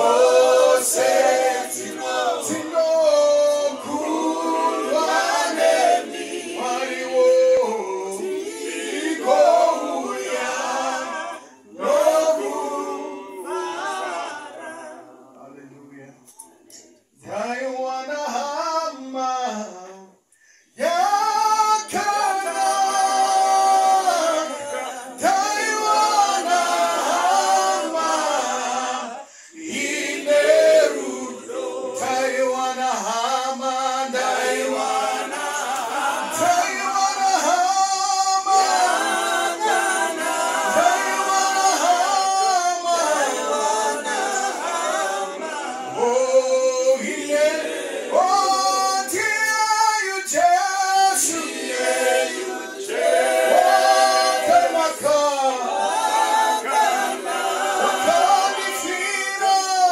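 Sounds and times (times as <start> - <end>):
group singing a hymn: 0.0 - 15.6, 20.7 - 59.9
man singing into a microphone: 17.2 - 20.2, 48.2 - 51.5.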